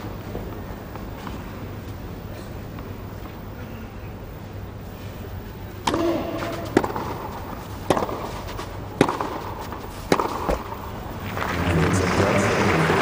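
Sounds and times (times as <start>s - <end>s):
tennis racquets hitting ball: 5.8s - 11.6s
crowd applauding: 11.2s - 13.0s.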